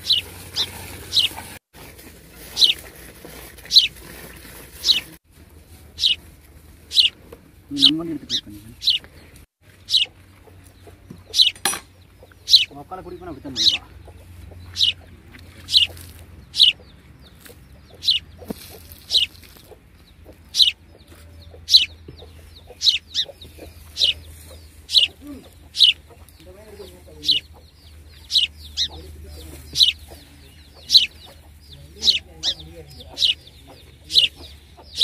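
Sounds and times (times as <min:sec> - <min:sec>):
chicks peeping: 0:00.0 - 0:01.6, 0:02.4 - 0:35.0.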